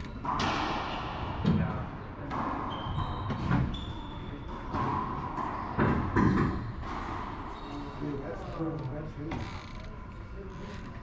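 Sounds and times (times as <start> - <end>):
echoing ball smacks: 0.2 - 2.7
sneakers squeaking on floor: 2.4 - 8.1.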